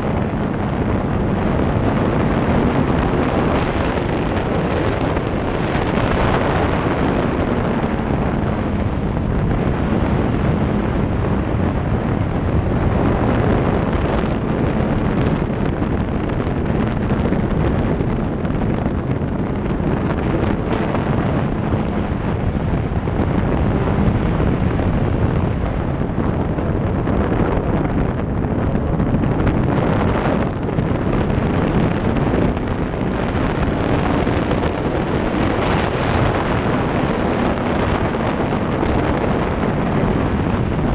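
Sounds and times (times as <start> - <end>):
wind buffeting microphone: 0.0 - 40.9.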